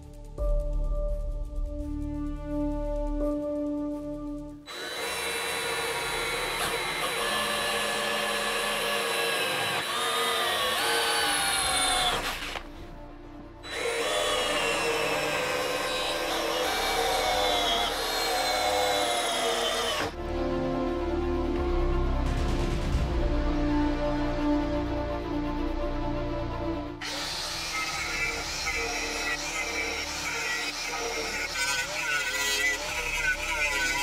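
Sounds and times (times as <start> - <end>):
cordless drill boring through steel: 4.7 - 12.7, 13.6 - 20.2, 27.0 - 34.0.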